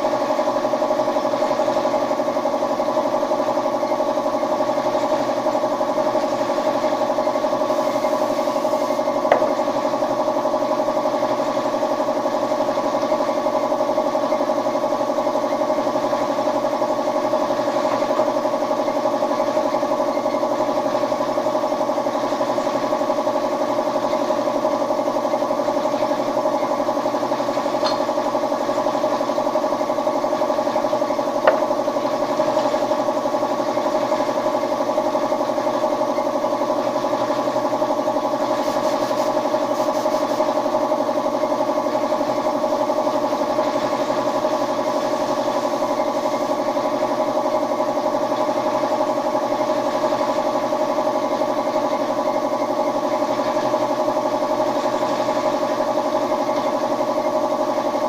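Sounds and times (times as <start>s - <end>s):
motor humming: 7.9s - 10.2s, 30.7s - 34.5s.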